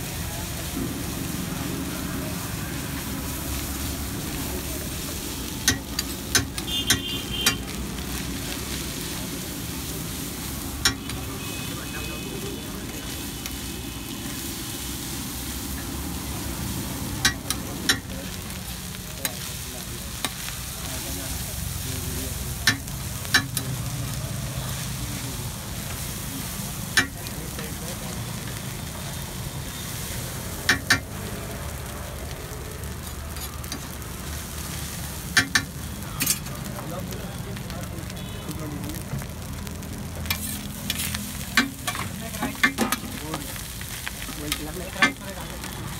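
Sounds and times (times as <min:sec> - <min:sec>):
rice sizzling on a griddle: 0:00.0 - 0:45.9.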